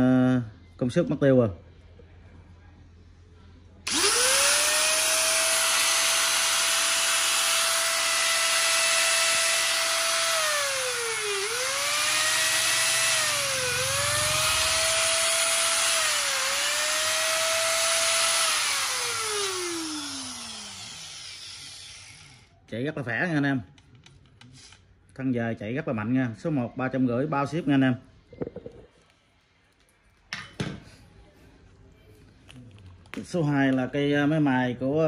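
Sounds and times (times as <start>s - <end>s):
angle grinder whining: 3.9s - 22.5s.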